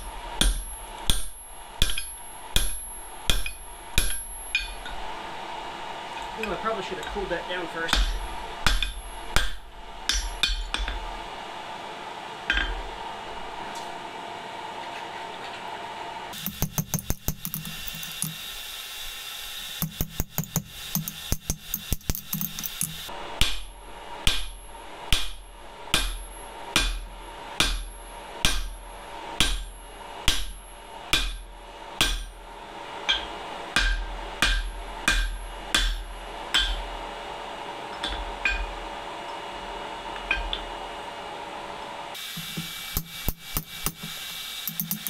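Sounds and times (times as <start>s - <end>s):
hammer blows ringing on anvil: 0.0s - 4.9s, 7.9s - 11.1s, 19.8s - 32.4s, 33.1s - 36.9s.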